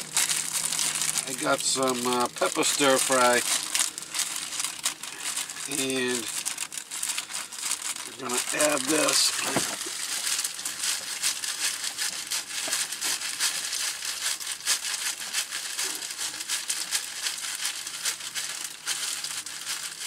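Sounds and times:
plastic bag crinkling: 0.0 - 20.0
vegetables tumbling into pot: 8.0 - 11.0.

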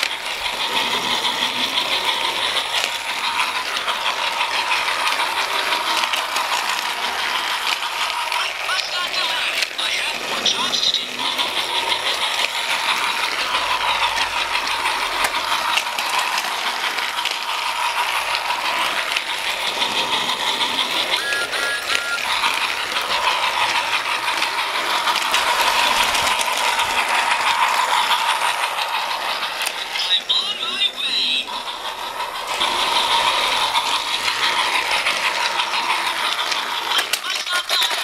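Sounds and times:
toy electric motor whining: 0.0 - 38.0
toy train wheels rattling: 0.0 - 38.0.

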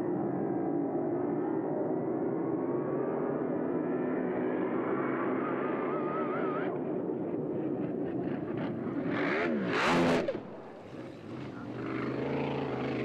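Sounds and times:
steady engine drone: 0.0 - 13.0.

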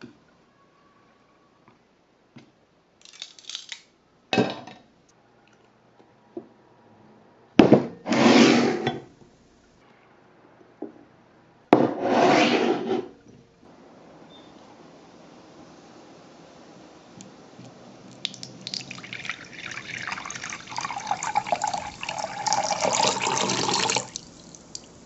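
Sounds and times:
kitchenware scraping on wood: 8.1 - 9.0, 11.8 - 13.2.

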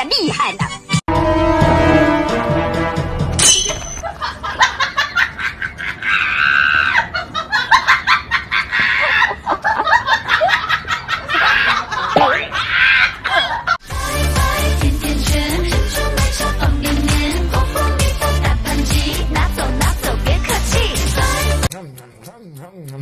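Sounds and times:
person laughing and giggling: 4.0 - 13.8.

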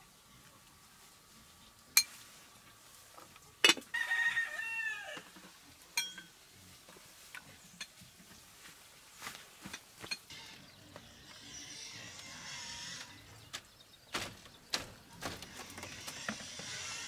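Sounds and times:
rooster crowing: 3.9 - 5.3
spoon clinking china bowls: 6.0 - 6.3.

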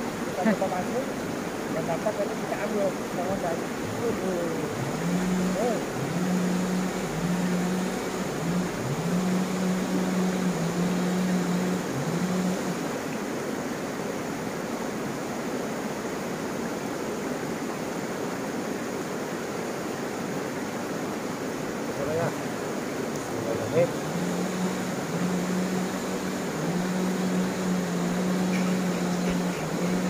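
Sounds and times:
low hum: 0.0 - 13.3, 23.1 - 30.0
rocky river flowing: 0.0 - 30.0.

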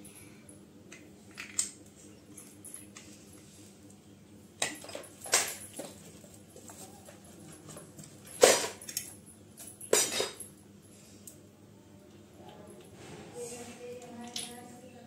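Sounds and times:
rustling handling noises: 4.8 - 9.0.

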